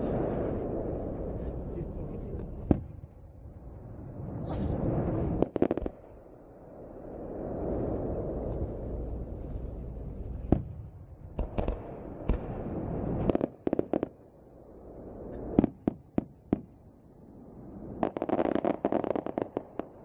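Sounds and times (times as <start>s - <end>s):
firework bangs: 0.0s - 3.1s, 4.3s - 6.2s, 7.2s - 14.2s, 15.3s - 16.8s, 18.0s - 20.0s.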